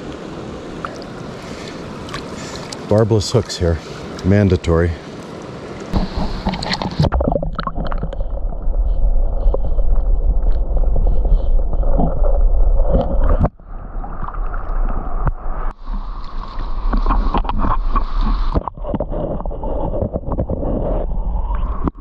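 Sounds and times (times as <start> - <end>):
water gurgling and sloshing: 0.0 - 22.0
heavy low rumble: 7.5 - 15.7.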